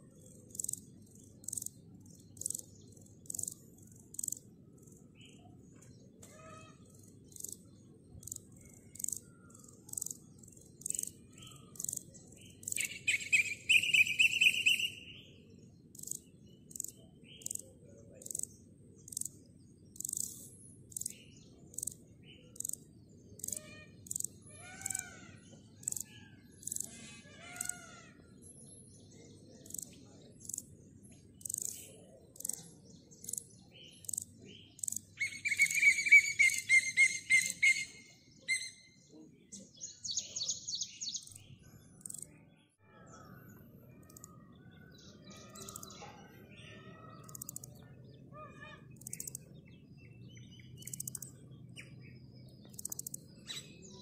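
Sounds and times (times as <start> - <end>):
birds chirping: 0.0 - 54.0
bird song burst: 0.1 - 54.0
grasshopper chirping: 0.5 - 5.0, 7.3 - 7.6, 8.2 - 14.9, 15.9 - 17.6, 18.2 - 18.5, 19.1 - 25.1, 25.8 - 26.9, 27.6 - 27.8, 29.6 - 30.7, 31.4 - 37.8, 42.0 - 42.3, 45.5 - 45.9, 47.2 - 47.7, 48.9 - 49.5, 50.8 - 51.3, 52.6 - 53.6.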